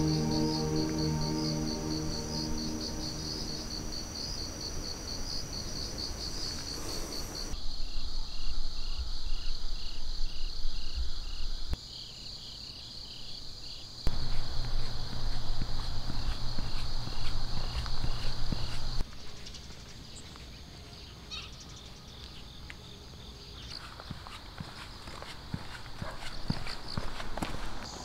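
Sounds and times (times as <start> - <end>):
insects chirping in pulses: 0.0 - 10.5.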